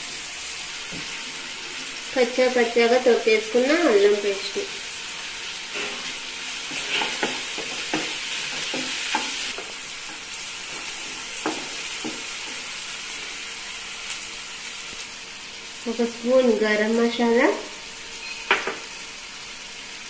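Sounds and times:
vegetables sizzling in oil: 0:00.0 - 0:20.0
spatula scraping and knocking pan: 0:05.7 - 0:12.7.

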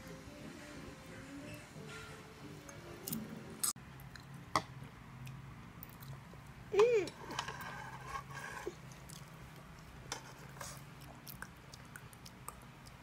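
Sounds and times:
quiet chewing: 0:05.2 - 0:06.5, 0:07.3 - 0:13.0.

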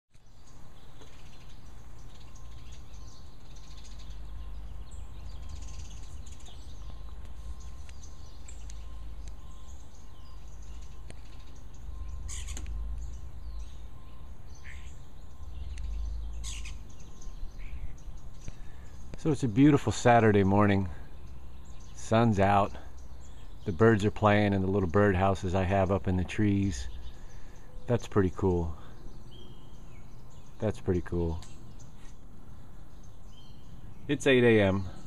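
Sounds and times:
birds chirping: 0:00.1 - 0:35.0
low rumble: 0:03.8 - 0:19.3.

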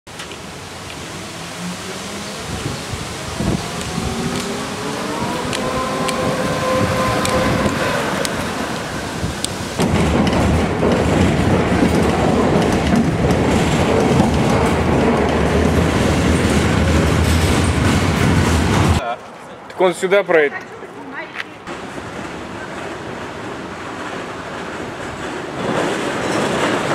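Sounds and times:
tram rumble and rattle: 0:00.1 - 0:26.9
tram motors whining: 0:00.2 - 0:19.0
wheels clicking over rail joints: 0:03.4 - 0:19.0, 0:21.7 - 0:26.9.

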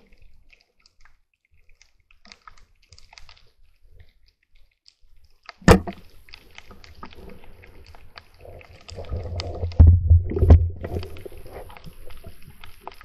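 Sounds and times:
speargun firing underwater: 0:05.6 - 0:06.0
low rumbling water noise: 0:05.6 - 0:13.0.

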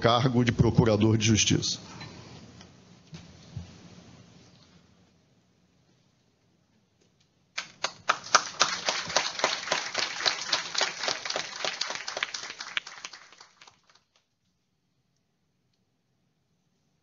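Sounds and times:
audience applauding: 0:07.6 - 0:14.2.

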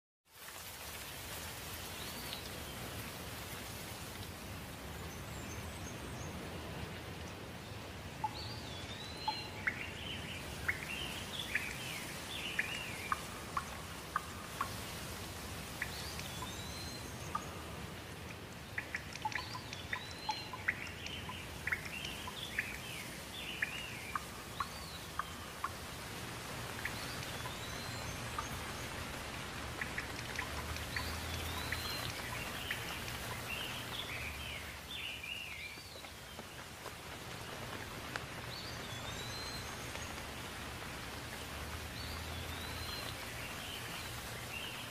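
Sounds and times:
steady rain falling: 0:00.2 - 0:44.9
birds chirping: 0:08.2 - 0:14.7, 0:15.8 - 0:36.6.

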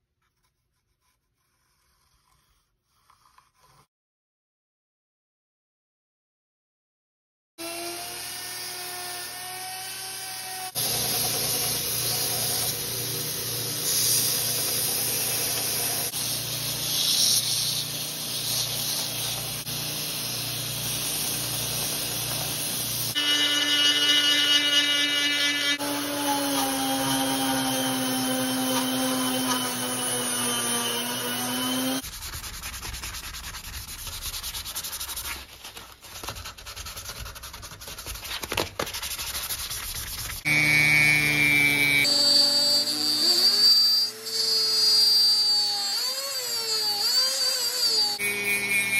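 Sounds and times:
wood grating on sanding belt: 0:10.8 - 0:32.0
belt sander motor whine: 0:23.1 - 0:32.0, 0:40.5 - 0:44.2.

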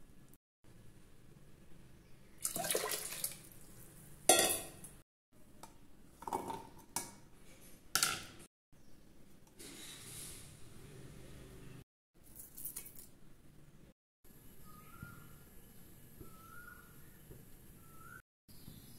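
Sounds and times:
water pouring and splashing: 0:02.4 - 0:04.0
steel kitchenware clinking: 0:04.3 - 0:04.9.

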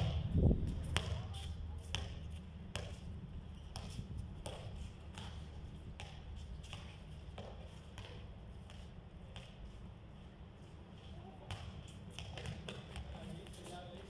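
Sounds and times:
basketball bouncing on concrete: 0:00.0 - 0:09.6, 0:11.4 - 0:13.8.

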